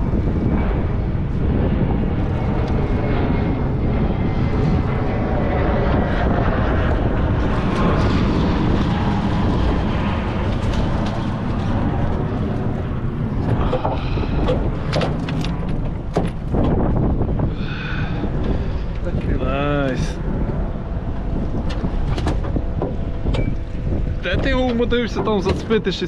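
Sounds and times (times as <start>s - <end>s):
wind rumble on microphone: 0.0s - 26.0s
sharp clicks and knocks: 13.4s - 16.8s, 21.6s - 25.8s.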